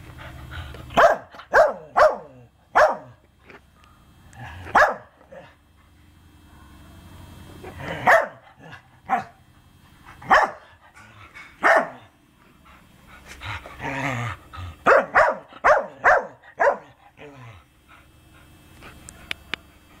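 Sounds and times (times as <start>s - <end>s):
dog barking: 1.0s - 3.2s, 4.7s - 5.1s, 8.0s - 8.4s, 9.1s - 9.4s, 10.2s - 10.7s, 11.6s - 12.1s, 14.8s - 17.0s.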